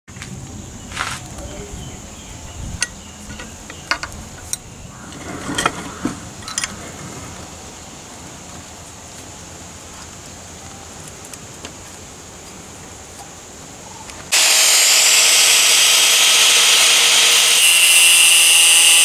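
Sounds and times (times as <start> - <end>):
steady background hiss: 0.1 - 15.0.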